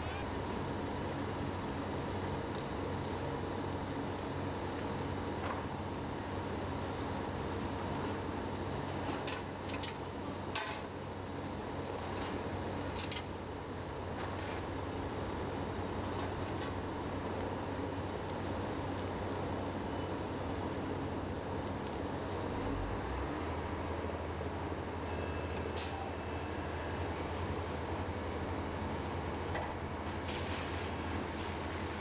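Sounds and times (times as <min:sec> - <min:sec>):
fire engines running: 0:00.0 - 0:32.0
rushing fire and hose streams: 0:00.1 - 0:32.0.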